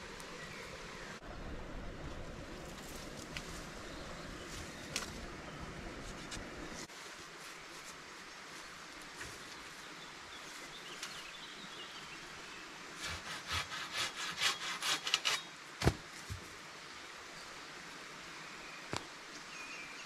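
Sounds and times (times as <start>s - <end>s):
hand saw cutting wood: 13.0s - 15.5s.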